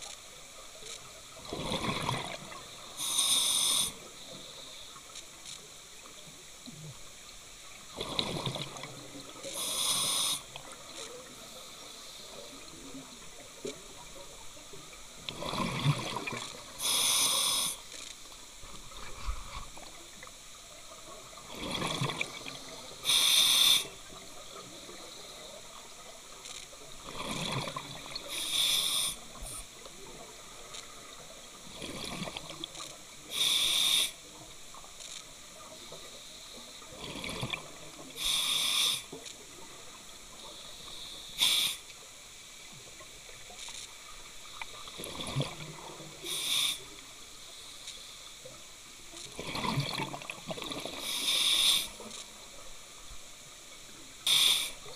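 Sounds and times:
regulator breathing underwater: 0:03.0 - 0:04.0, 0:09.5 - 0:10.5, 0:16.8 - 0:17.8, 0:22.9 - 0:24.0, 0:28.3 - 0:29.6, 0:33.3 - 0:34.2, 0:38.2 - 0:39.1, 0:40.6 - 0:41.9, 0:46.2 - 0:46.9, 0:50.9 - 0:52.0, 0:54.2 - 0:54.9.

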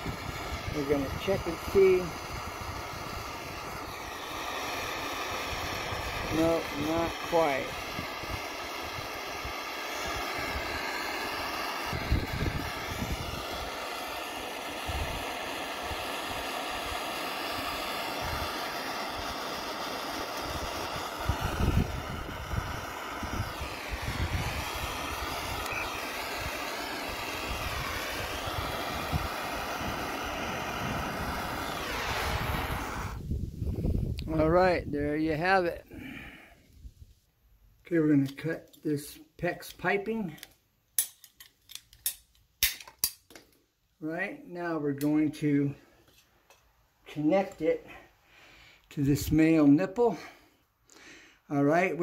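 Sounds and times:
gas torch hissing and whistling: 0:00.0 - 0:34.5, 0:35.3 - 0:37.0.

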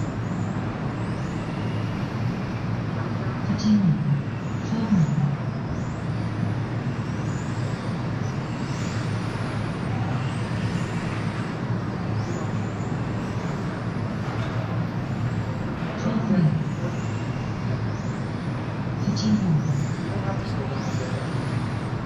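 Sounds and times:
rc car motors whining: 0:07.0 - 0:14.2.

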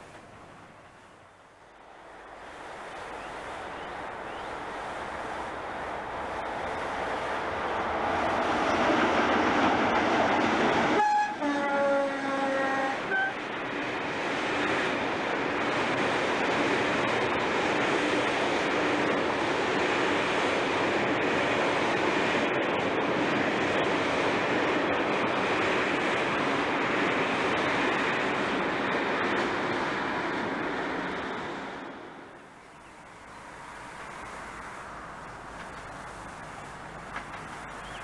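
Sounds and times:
freight train rushing past: 0:00.0 - 0:38.0
diesel locomotive horn: 0:11.0 - 0:13.4.

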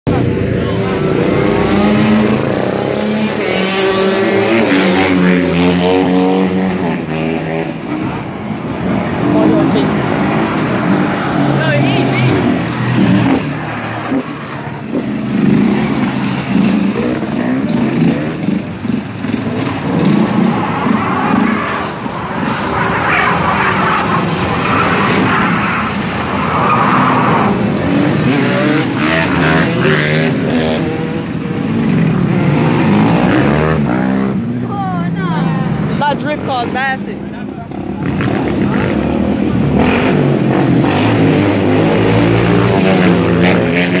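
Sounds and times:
car engine revving: 0:00.1 - 0:34.5.

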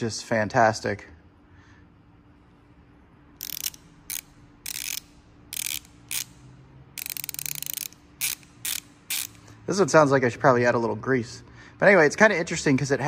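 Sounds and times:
ratchet pawl clicking rapidly: 0:03.4 - 0:09.5.

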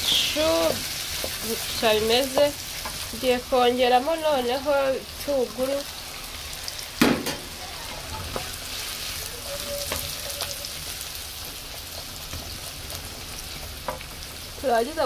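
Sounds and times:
vegetables sizzling in oil: 0:00.0 - 0:15.0
sharp knock: 0:07.0 - 0:07.5
spatula scraping and tapping pan: 0:09.4 - 0:10.6.

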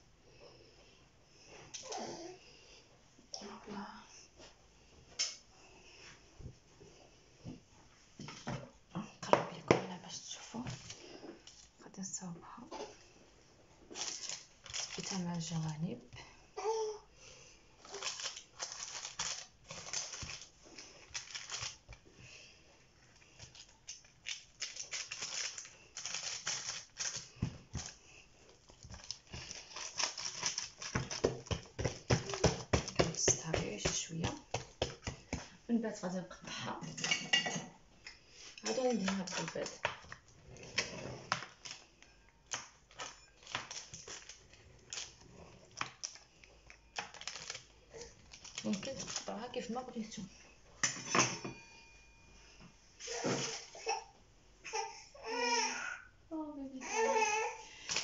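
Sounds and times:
hands patting dough on paper: 0:24.1 - 0:35.6.

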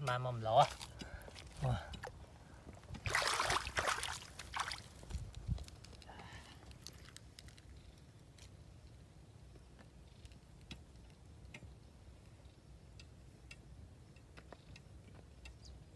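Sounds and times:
faint ticks: 0:06.7 - 0:15.9.

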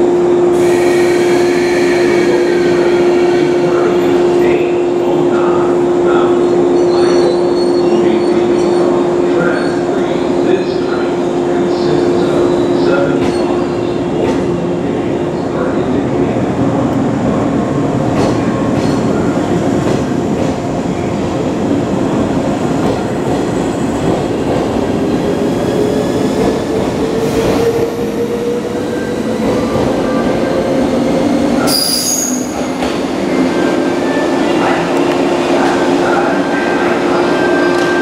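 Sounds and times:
train rumble: 0:00.0 - 0:38.0
high wheel squeal: 0:31.6 - 0:32.6.

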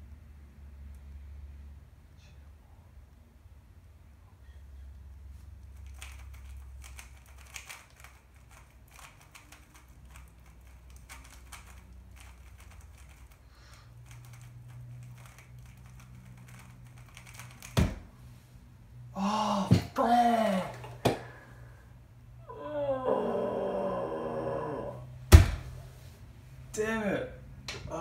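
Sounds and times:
puzzle cube plastic clicks: 0:05.7 - 0:13.4, 0:14.0 - 0:17.8.

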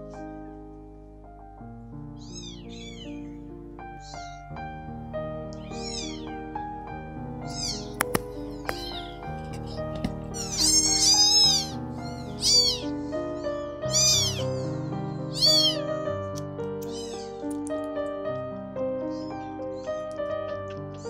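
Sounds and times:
kitten meowing loudly: 0:02.2 - 0:03.4, 0:04.0 - 0:04.5, 0:05.6 - 0:06.4, 0:07.5 - 0:14.7, 0:15.3 - 0:15.9, 0:16.8 - 0:17.4
background music: 0:02.8 - 0:21.0.

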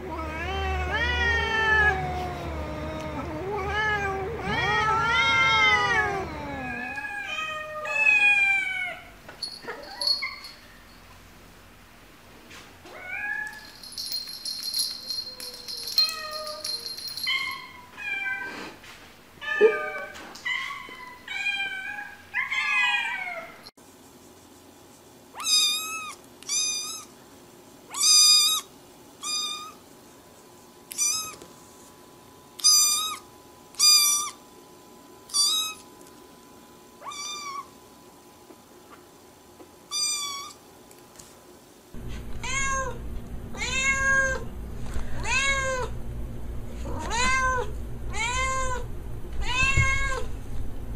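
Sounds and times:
cats meowing: 0:00.0 - 0:09.1, 0:42.1 - 0:44.5, 0:45.1 - 0:45.9, 0:46.8 - 0:50.3
kitten high-pitched meows: 0:25.4 - 0:27.1, 0:27.9 - 0:29.8, 0:30.9 - 0:31.4, 0:32.6 - 0:34.4, 0:35.3 - 0:35.9, 0:37.0 - 0:37.7, 0:39.9 - 0:40.6, 0:46.9 - 0:48.8, 0:49.4 - 0:50.3
low hum: 0:42.0 - 0:50.9.

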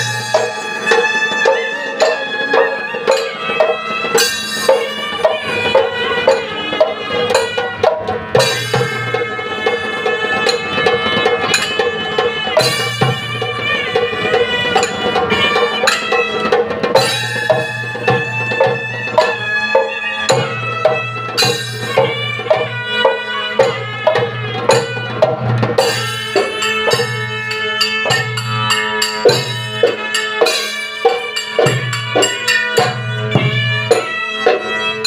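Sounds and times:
reed pipes playing a melody: 0:00.0 - 0:07.8, 0:08.6 - 0:25.3
drum beating: 0:00.0 - 0:35.0.

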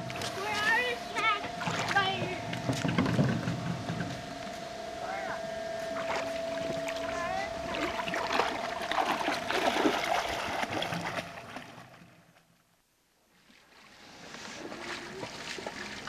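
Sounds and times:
shallow water splashing: 0:00.0 - 0:12.4, 0:13.5 - 0:16.0
steady background hum: 0:00.0 - 0:16.0.

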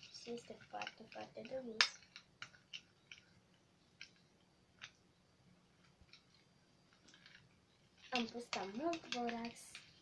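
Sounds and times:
spoons clicking against glass bowls: 0:08.0 - 0:10.0.

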